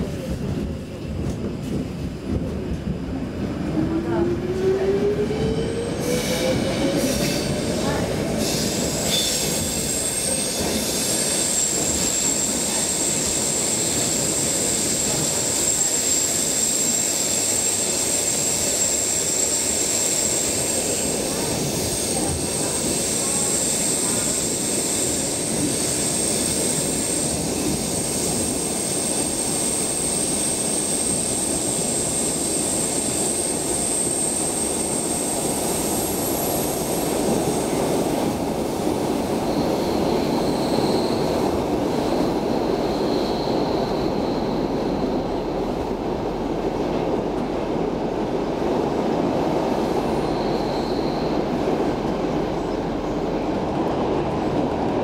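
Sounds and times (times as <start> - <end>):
subway wheels rumbling on rails: 0.0 - 55.0
faint high squeals: 39.5 - 41.4, 42.5 - 45.6, 50.1 - 51.6.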